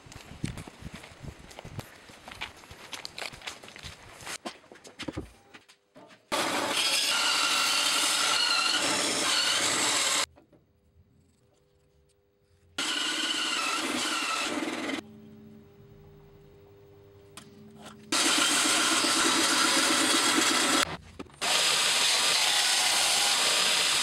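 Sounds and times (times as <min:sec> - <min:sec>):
bandsaw cutting wood: 0:06.3 - 0:10.3, 0:12.8 - 0:15.0, 0:18.1 - 0:24.0
saw humming: 0:06.3 - 0:10.3, 0:12.8 - 0:15.0, 0:18.1 - 0:24.0.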